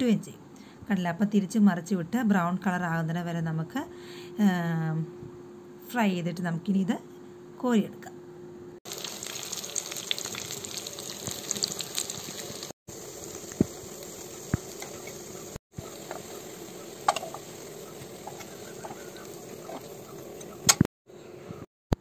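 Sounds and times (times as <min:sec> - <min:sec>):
meat sizzling in hot oil: 0:08.9 - 0:20.7.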